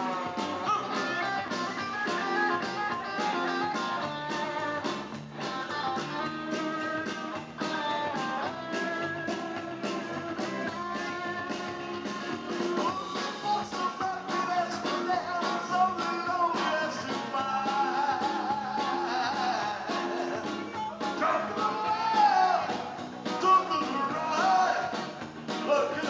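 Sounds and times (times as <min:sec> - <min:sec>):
drum kit: 0:00.0 - 0:26.0
electric guitars: 0:00.0 - 0:26.0
man singing into microphone: 0:12.8 - 0:26.0.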